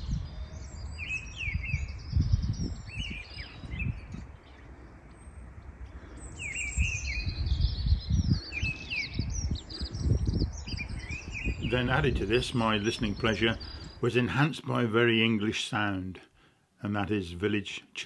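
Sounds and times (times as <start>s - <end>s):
wind rumble on microphone: 0.0s - 14.0s.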